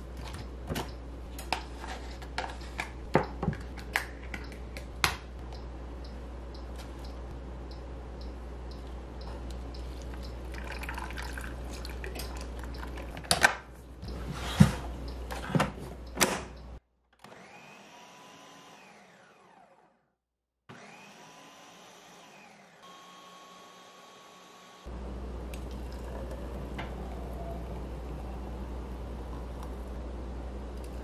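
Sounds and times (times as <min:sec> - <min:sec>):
blender motor running: 0:17.2 - 0:20.0, 0:20.7 - 0:24.9
liquid pouring into blender jar: 0:25.6 - 0:27.8.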